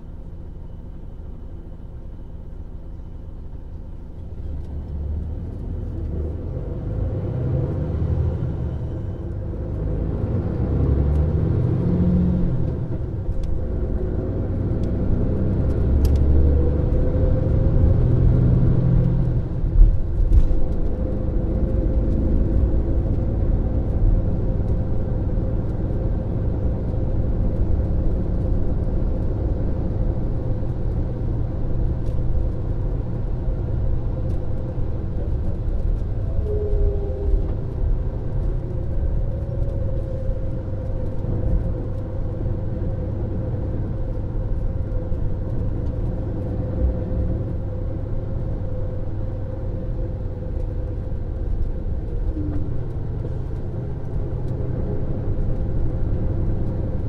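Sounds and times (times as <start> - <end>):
diesel engine running steadily: 0.0 - 57.0.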